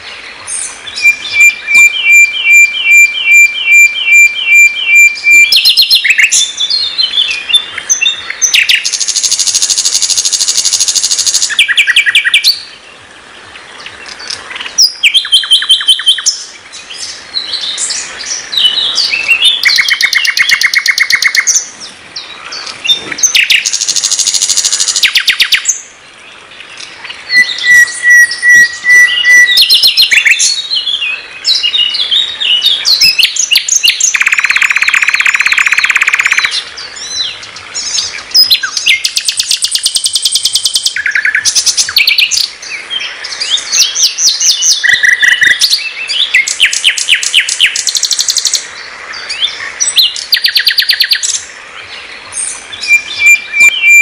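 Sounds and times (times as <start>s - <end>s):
bird singing trills and rattles: 0.6s - 12.6s, 14.0s - 16.4s, 18.6s - 21.7s, 22.4s - 25.8s, 32.6s - 42.5s, 43.4s - 48.6s, 49.3s - 51.5s
bird whistles: 1.0s - 6.5s, 27.3s - 30.4s, 33.0s - 36.5s, 52.9s - 54.0s.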